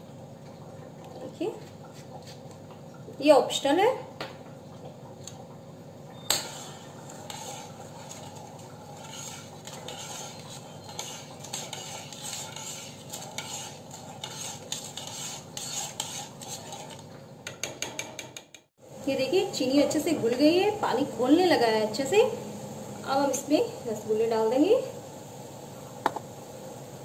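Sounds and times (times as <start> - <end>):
spoon scraping and clinking pan: 6.3 - 18.5.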